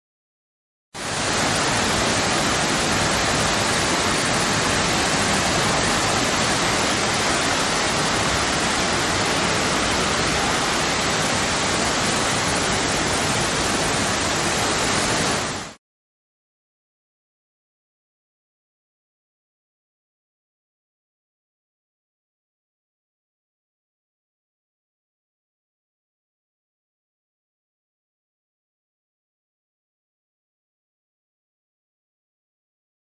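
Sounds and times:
fast-flowing floodwater rushing: 0:01.0 - 0:15.8.

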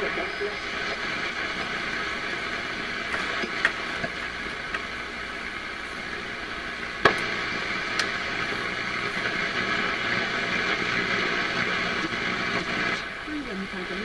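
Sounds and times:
radio static hiss: 0:00.0 - 0:14.0
receiver clicks: 0:03.0 - 0:05.0, 0:07.0 - 0:13.0.

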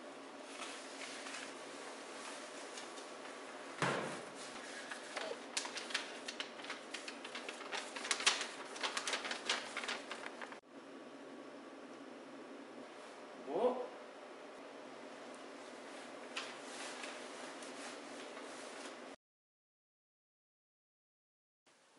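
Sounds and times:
paper crackling and rustling: 0:00.4 - 0:03.6, 0:04.2 - 0:10.6, 0:16.0 - 0:19.1
thump: 0:03.8 - 0:04.2.

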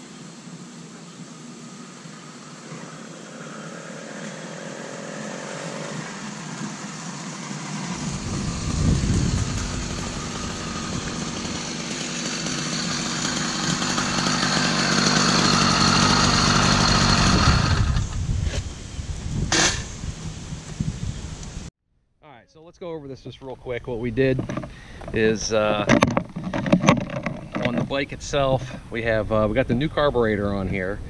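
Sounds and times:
two-stroke bicycle engine running: 0:04.6 - 0:18.2.

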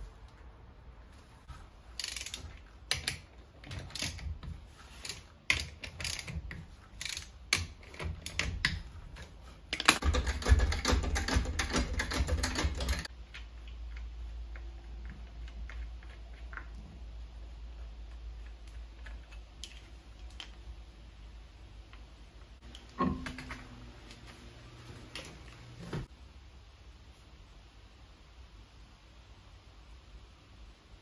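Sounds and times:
ratchet wrench clicking: 0:02.0 - 0:03.2, 0:05.0 - 0:06.4, 0:07.0 - 0:08.4.

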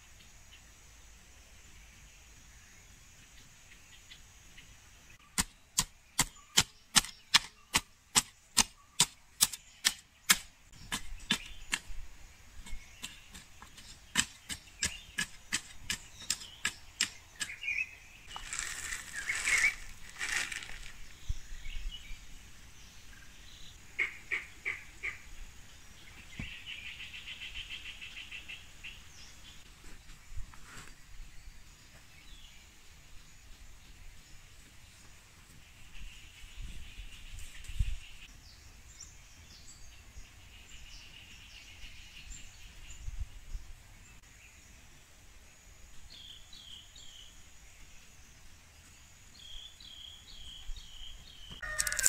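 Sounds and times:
hoe striking soil: 0:05.3 - 0:12.0, 0:12.6 - 0:17.6, 0:51.6 - 0:52.0.

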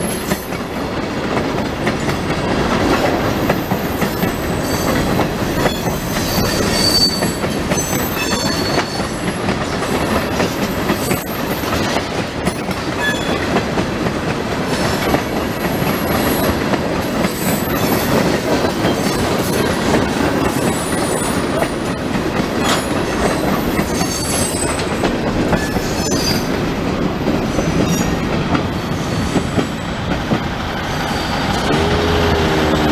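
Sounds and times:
train wheels clattering over rail joints: 0:00.0 - 0:32.9
high wheel squeals: 0:05.7 - 0:09.1.

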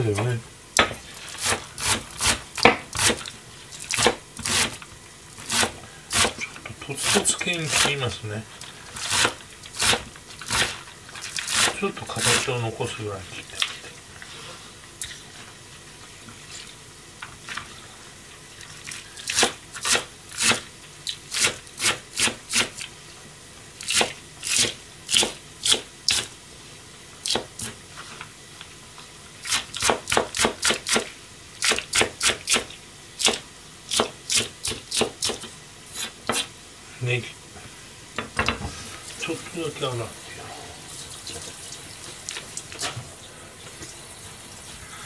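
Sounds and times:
knife chopping on plastic cutting board: 0:29.8 - 0:31.1, 0:33.3 - 0:36.5.

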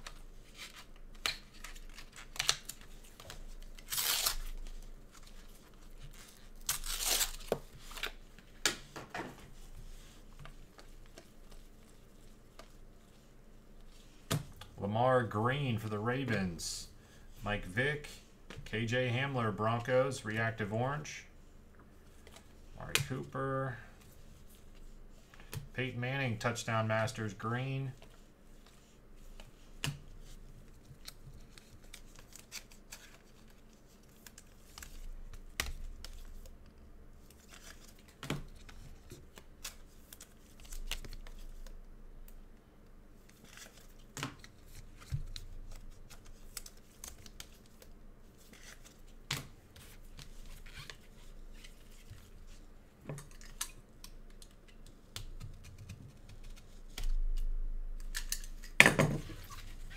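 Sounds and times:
wrapper crinkling and tearing: 0:01.4 - 0:05.2, 0:06.0 - 0:08.2.

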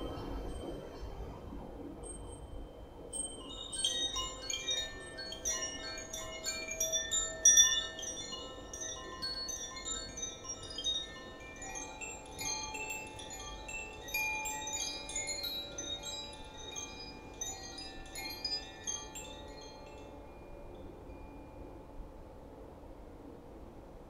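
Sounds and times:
chimes ringing: 0:03.6 - 0:21.5.

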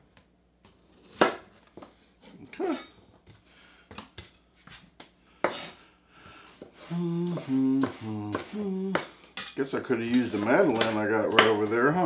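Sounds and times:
man humming: 0:06.8 - 0:09.2.

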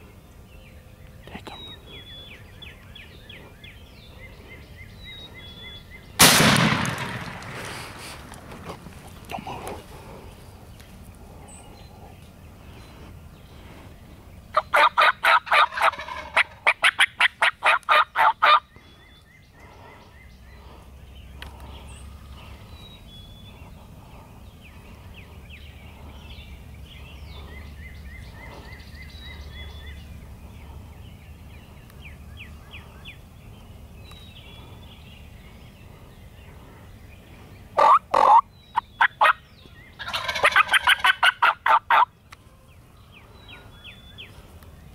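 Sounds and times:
turkeys gobbling: 0:14.6 - 0:18.6, 0:37.8 - 0:39.4, 0:40.0 - 0:42.1
faint turkey call notes: 0:37.8 - 0:39.3.

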